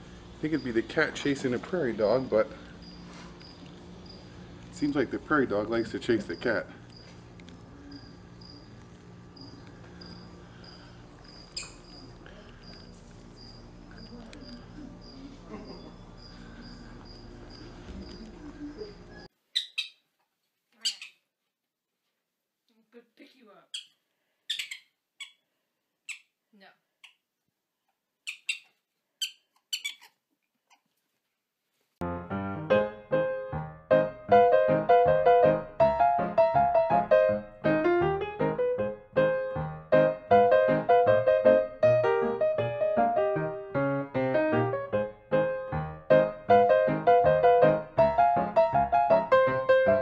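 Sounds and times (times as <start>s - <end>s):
steady low hum: 0.0s - 19.3s
high-pitched chirps: 11.5s - 12.1s, 23.7s - 25.4s
prairie dog chirping: 11.5s - 12.2s, 18.1s - 20.1s, 20.8s - 21.2s, 23.7s - 25.4s, 26.0s - 26.4s, 28.2s - 30.8s
piano music: 32.0s - 50.0s.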